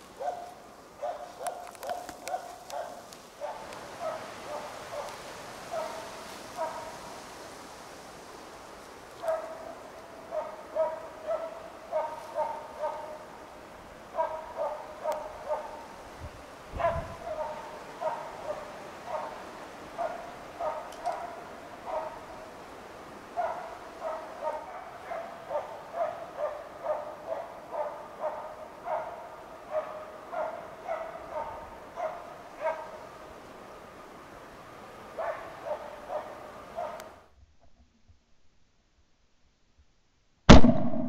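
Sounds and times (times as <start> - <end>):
dog barking: 0.2 - 7.0, 9.2 - 13.2, 14.1 - 15.9, 16.8 - 19.4, 20.0 - 22.3, 23.4 - 33.1, 35.2 - 37.1.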